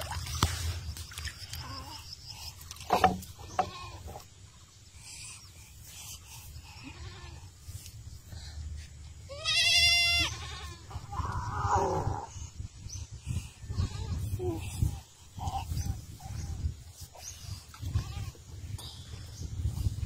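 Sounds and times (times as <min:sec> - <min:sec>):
animal bleating: 0:09.3 - 0:11.0.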